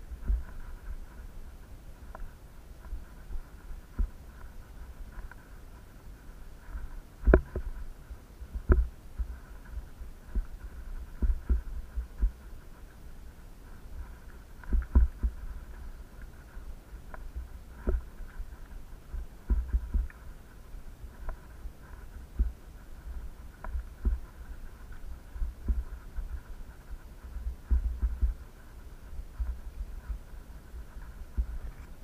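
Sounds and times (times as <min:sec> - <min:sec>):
faint steady hiss: 0:00.0 - 0:32.0
camera thumps and knocks: 0:07.2 - 0:07.7, 0:08.6 - 0:08.9.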